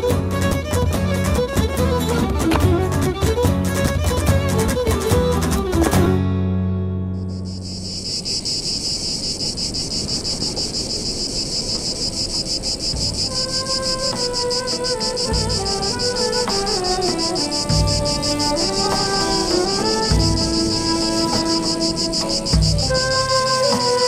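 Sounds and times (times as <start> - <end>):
soft melody: 0.0 - 8.0, 12.8 - 24.0
insect chirring: 7.2 - 24.0.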